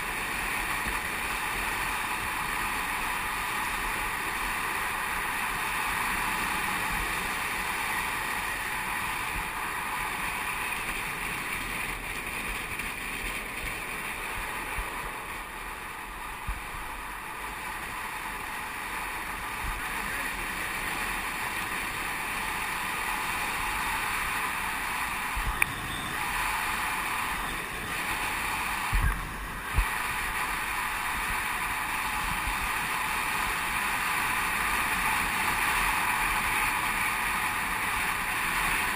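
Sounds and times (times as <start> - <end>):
longboard wheels rolling on asphalt: 0.0 - 38.9
wind on microphone: 23.1 - 38.9.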